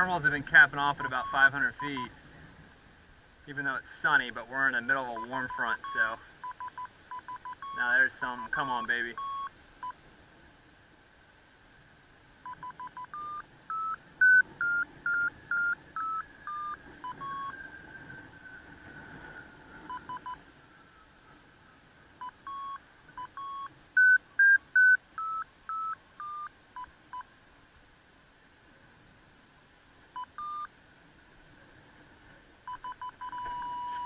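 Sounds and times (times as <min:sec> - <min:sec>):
short electronic beeps: 0:01.0 - 0:02.1, 0:05.2 - 0:10.0, 0:12.4 - 0:17.6, 0:19.9 - 0:20.4, 0:22.2 - 0:27.3, 0:30.2 - 0:30.7, 0:32.7 - 0:34.0.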